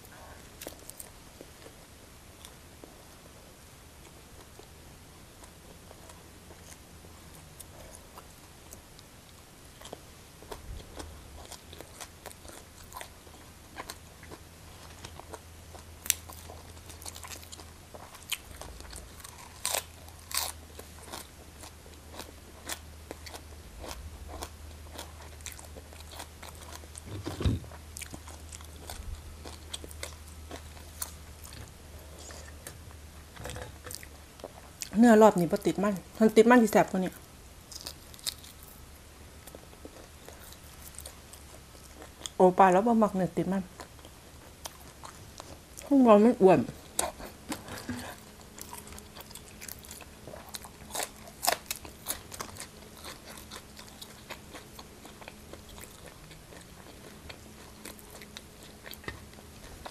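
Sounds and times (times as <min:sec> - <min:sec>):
chewing and crunching: 0:00.0 - 0:03.0, 0:04.0 - 0:59.9
dull thump: 0:27.1 - 0:27.7.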